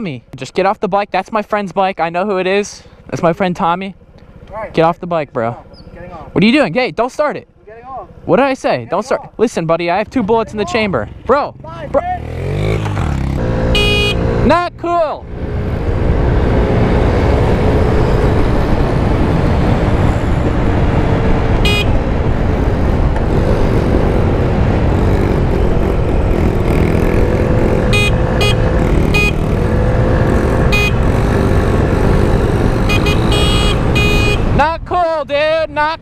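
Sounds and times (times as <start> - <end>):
dirt bike engine: 1.4 - 35.9
moped engine running: 10.1 - 14.7, 21.0 - 34.7
high-pitched horn toots: 13.4 - 14.5, 21.6 - 22.0, 27.6 - 34.6
wind rush: 15.5 - 27.7.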